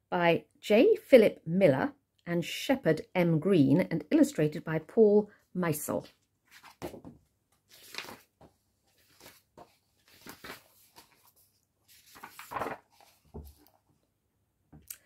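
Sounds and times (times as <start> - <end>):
paper pages rustling: 6.4 - 14.0.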